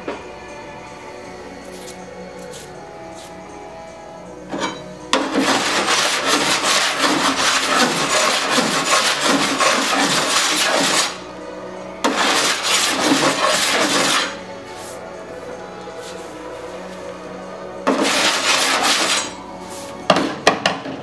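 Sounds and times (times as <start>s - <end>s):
file rasping across steel panel: 5.2s - 11.2s, 12.0s - 15.0s, 17.9s - 19.9s.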